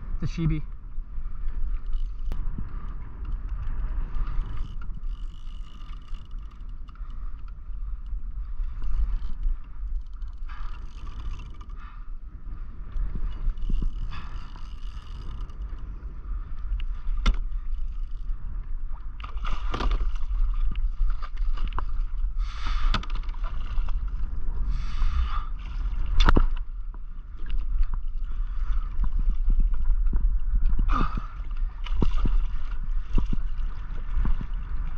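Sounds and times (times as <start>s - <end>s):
steady low rumble: 0.0s - 34.9s
water splashing against kayak hull: 1.2s - 34.9s.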